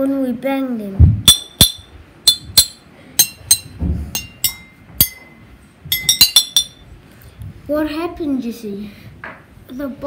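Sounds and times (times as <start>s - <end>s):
spoon clinking glass bottles: 5.9s - 6.8s.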